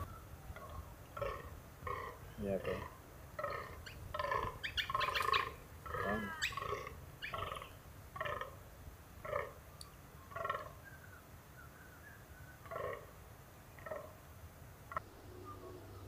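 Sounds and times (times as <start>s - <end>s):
deer croaking calls: 0.0s - 8.6s, 9.2s - 9.6s, 10.3s - 10.8s, 12.6s - 14.2s.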